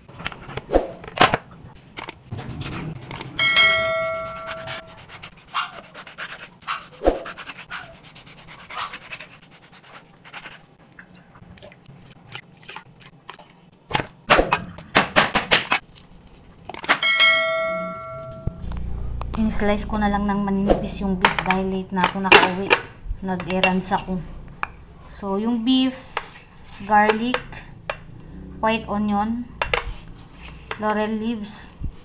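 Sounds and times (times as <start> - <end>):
bell-like chime: 3.4 - 4.9, 17.0 - 18.6
knocks and clatters: 20.5 - 24.8, 25.7 - 28.2, 29.5 - 31.0.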